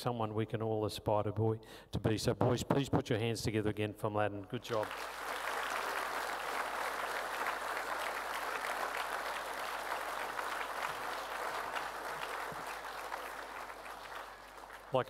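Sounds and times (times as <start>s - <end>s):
audience applause: 4.7s - 15.0s.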